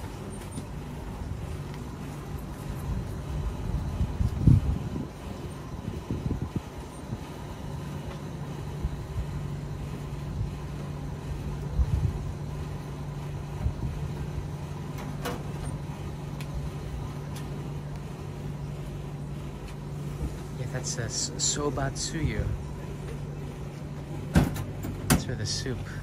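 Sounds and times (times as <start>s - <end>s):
low motor hum: 0.0s - 26.0s.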